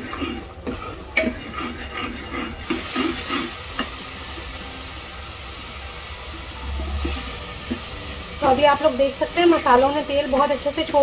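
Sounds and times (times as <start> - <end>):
ladle stirring and scraping pot: 0.0 - 4.6
sauce sizzling in oil: 0.0 - 11.0.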